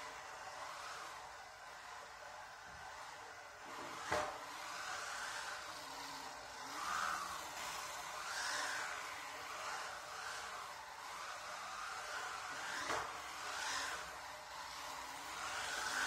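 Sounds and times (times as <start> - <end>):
electric motor whine: 0.0 - 16.0
wheels rubbing on concrete: 0.0 - 16.0.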